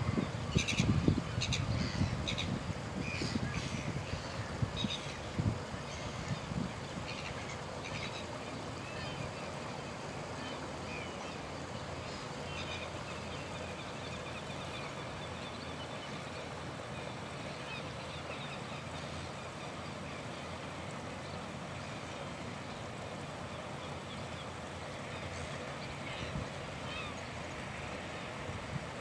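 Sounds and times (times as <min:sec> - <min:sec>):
faint mechanical hum: 0:00.0 - 0:29.0.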